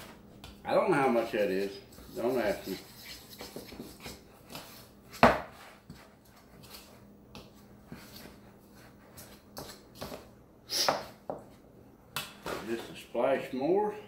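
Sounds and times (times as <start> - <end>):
spoon scraping dough in bowl: 1.3 - 4.9.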